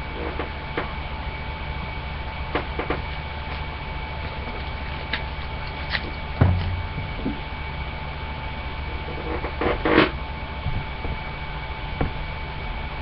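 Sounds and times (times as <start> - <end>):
microphone hum and hiss: 1.8 - 12.2
dull thump: 6.4 - 7.6.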